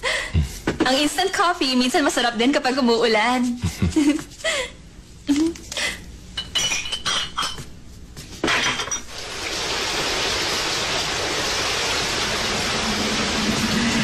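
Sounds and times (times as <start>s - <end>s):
ceramic mugs clinking: 6.4s - 7.7s
heavy rain hissing: 9.1s - 14.0s.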